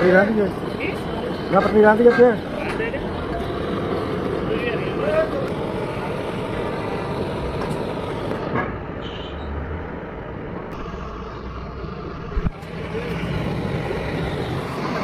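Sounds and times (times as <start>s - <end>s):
gas torch rushing: 0.0s - 9.4s, 10.0s - 15.0s.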